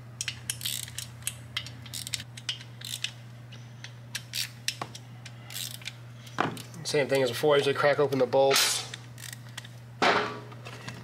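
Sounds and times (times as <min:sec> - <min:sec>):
ratchet wrench clicking: 0:00.2 - 0:03.2, 0:04.1 - 0:06.0, 0:09.2 - 0:09.7.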